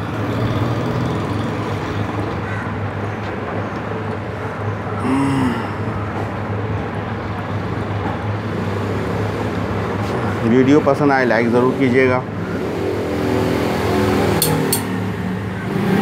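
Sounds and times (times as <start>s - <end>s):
background hum: 5.0s - 6.4s.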